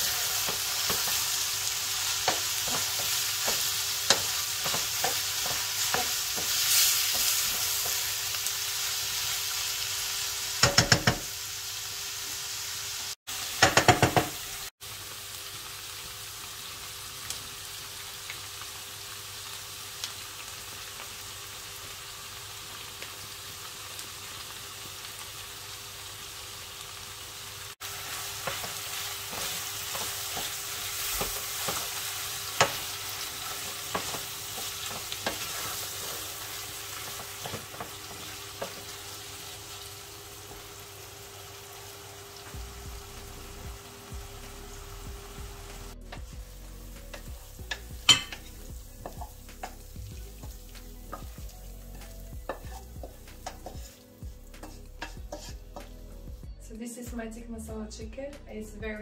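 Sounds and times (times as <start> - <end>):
food sizzling in a frying pan: 0.0 - 57.6
spatula scraping and tapping pan: 2.2 - 8.1, 10.6 - 11.3, 28.4 - 36.2, 47.0 - 54.0, 54.6 - 56.0.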